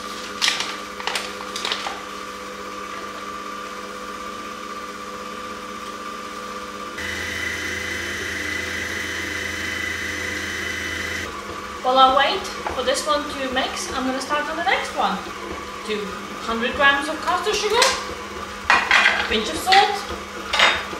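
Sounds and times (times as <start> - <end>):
paper bag rustling: 0.0 - 2.0
stand mixer motor running: 0.0 - 20.9.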